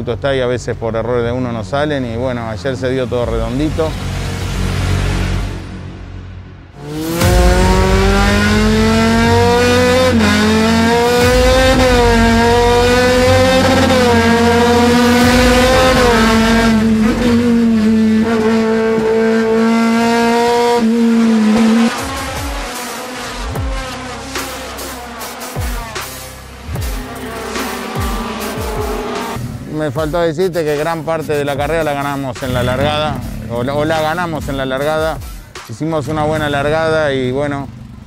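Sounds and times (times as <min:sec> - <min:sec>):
race car engine revving: 0:02.8 - 0:29.7, 0:32.4 - 0:35.1.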